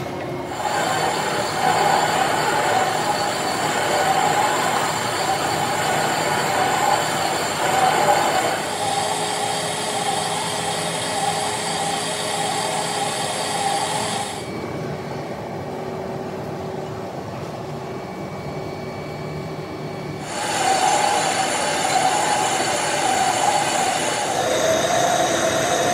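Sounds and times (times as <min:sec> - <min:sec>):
lathe machining noise: 0:00.0 - 0:15.4, 0:20.1 - 0:25.9
low machine hum: 0:00.0 - 0:25.9.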